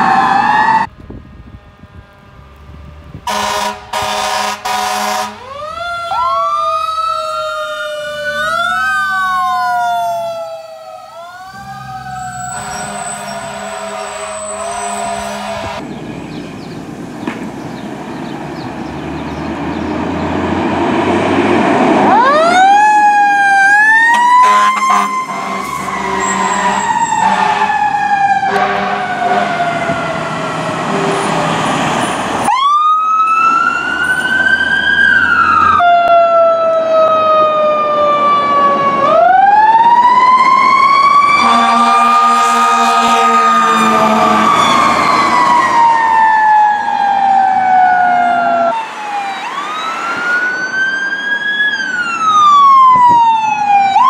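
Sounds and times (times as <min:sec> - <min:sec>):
fire truck siren wailing: 0:00.0 - 0:16.4, 0:19.0 - 0:54.0
horn blasts: 0:03.3 - 0:05.5, 0:11.6 - 0:15.8, 0:24.1 - 0:27.8, 0:28.5 - 0:29.7, 0:41.4 - 0:44.8.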